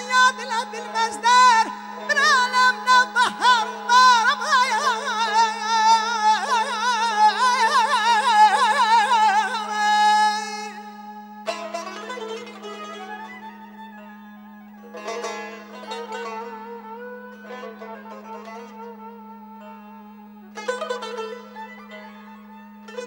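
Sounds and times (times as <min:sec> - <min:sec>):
man singing ornamented vocal line: 0:00.0 - 0:13.2.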